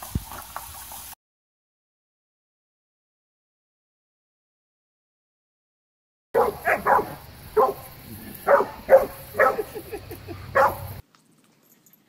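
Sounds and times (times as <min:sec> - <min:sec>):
dog barking: 0:06.4 - 0:11.0.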